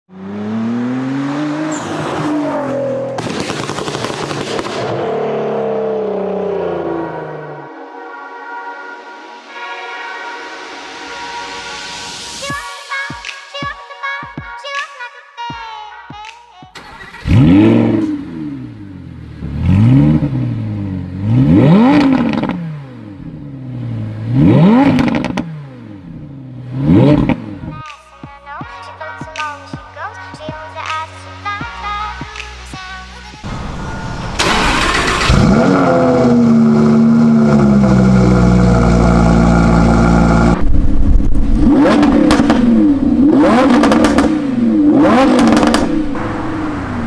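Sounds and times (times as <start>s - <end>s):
car engine revving: 0.1s - 7.8s, 16.8s - 27.8s, 33.5s - 47.0s
exhaust pops and crackles: 3.2s - 5.0s, 40.4s - 42.7s, 43.4s - 44.4s, 45.0s - 45.9s.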